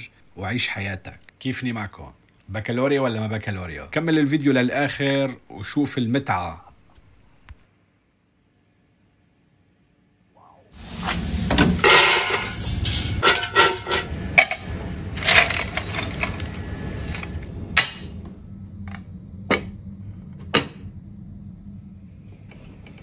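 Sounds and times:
fries sizzling in oil: 0:10.8 - 0:14.5
metal clinks of fries into bucket: 0:11.6 - 0:14.1.

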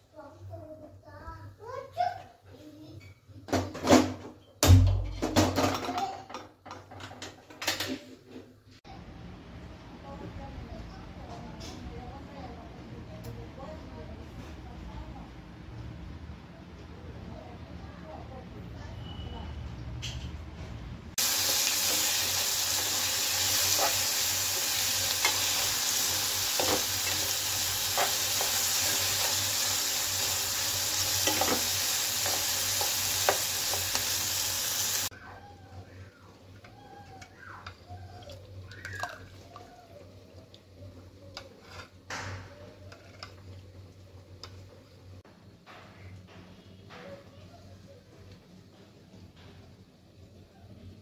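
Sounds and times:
vegetables sizzling in hot oil: 0:21.2 - 0:35.1
spatula scraping pan: 0:41.4 - 0:42.0, 0:42.7 - 0:43.4.

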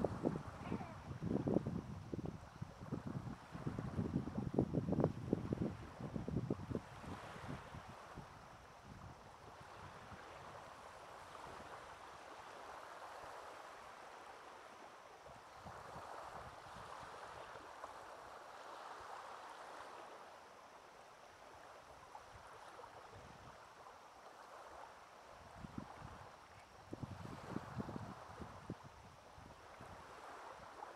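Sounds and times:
wind buffeting microphone: 0:00.0 - 0:10.5, 0:25.5 - 0:30.1
small waves on a pebbly shore: 0:09.4 - 0:30.9.

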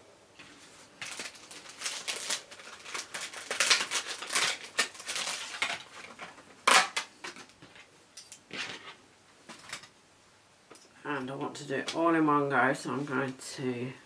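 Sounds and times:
packaging and papers rustling: 0:00.5 - 0:07.9.

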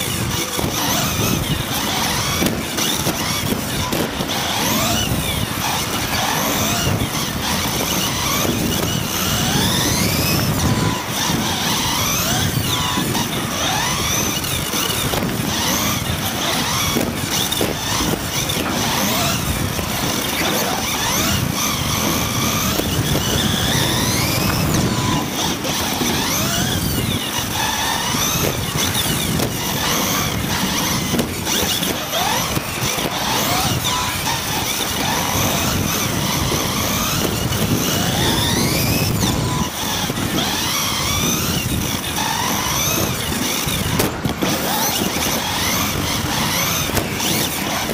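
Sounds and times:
electric motor whine: 0:00.0 - 0:47.9.

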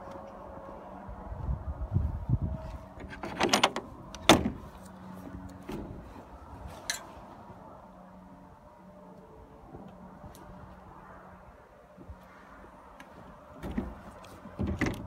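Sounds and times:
door clanking: 0:03.0 - 0:04.6
latch handle rattling: 0:03.0 - 0:04.6.

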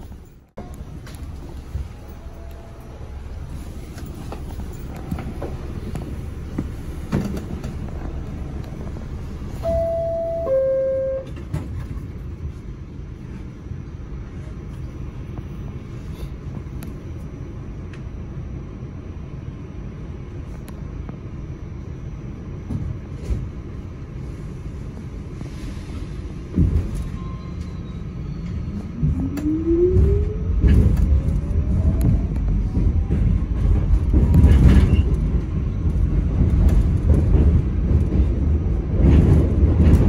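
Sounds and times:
subway car rumble: 0:00.0 - 0:40.0
two-note descending door chime: 0:09.6 - 0:11.3.

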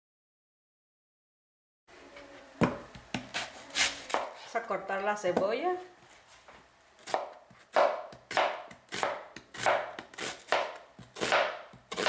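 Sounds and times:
knife slicing onion on board: 0:02.6 - 0:04.4, 0:07.0 - 0:12.0.

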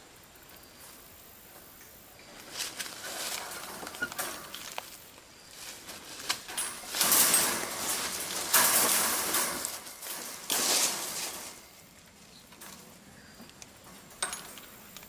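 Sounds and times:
rustling scrapes: 0:02.2 - 0:11.9
small metal clicks and scraping: 0:02.6 - 0:05.0, 0:06.2 - 0:15.0.

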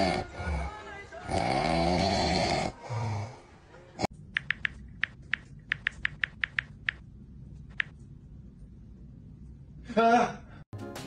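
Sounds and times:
man snoring: 0:00.0 - 0:03.4
keyboard typing clicks: 0:04.3 - 0:07.0.

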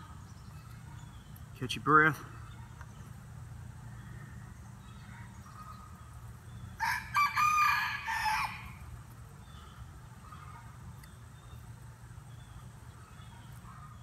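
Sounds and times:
rooster crowing: 0:06.8 - 0:08.8.

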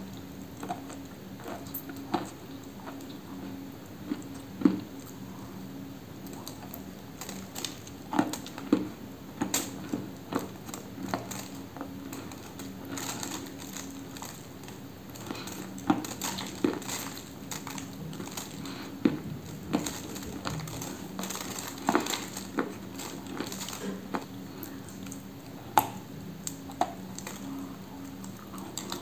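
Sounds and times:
crunchy cookie biting and chewing: 0:00.0 - 0:29.0.

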